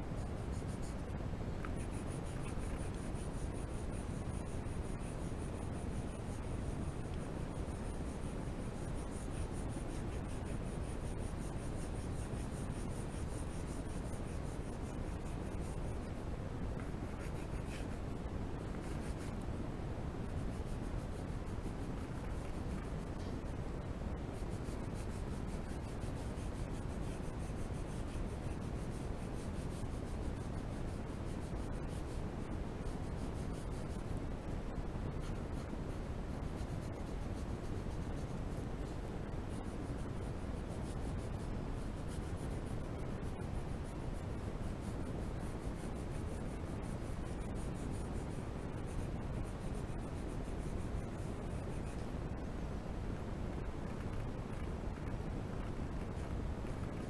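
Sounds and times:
pencil scratching on paper: 0.2 - 19.4, 20.2 - 23.6, 24.2 - 34.2, 35.2 - 38.6, 39.2 - 52.5.

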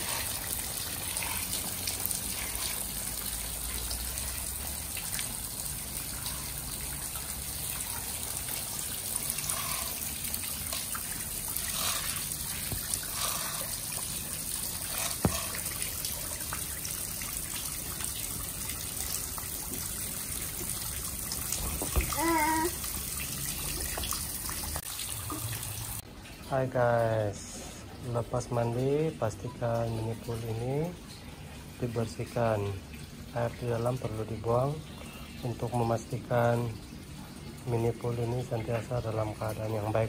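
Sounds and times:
toys splashing and knocking: 0.0 - 25.8
water trickling into paddling pool: 0.0 - 40.0.

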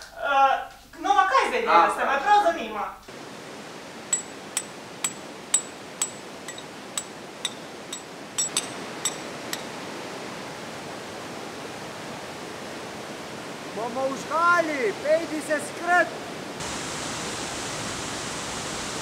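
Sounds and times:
water rushing: 3.1 - 19.0
hammer striking steel drill: 4.1 - 9.7.

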